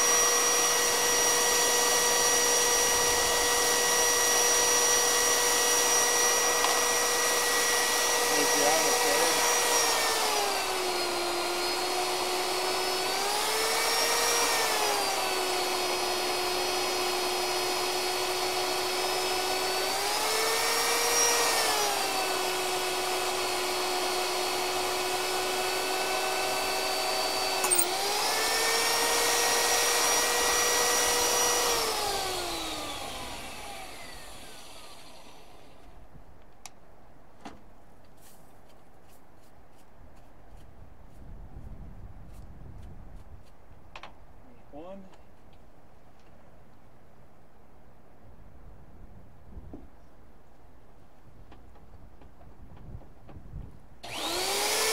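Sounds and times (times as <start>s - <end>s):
electric drill boring steel: 0.0s - 35.9s, 54.0s - 54.9s.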